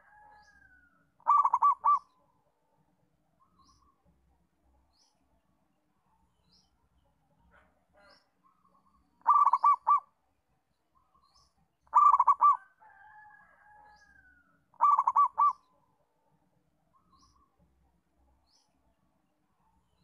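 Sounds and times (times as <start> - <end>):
dove cooing: 1.2 - 2.2, 9.2 - 10.1, 11.9 - 12.7, 14.8 - 15.7.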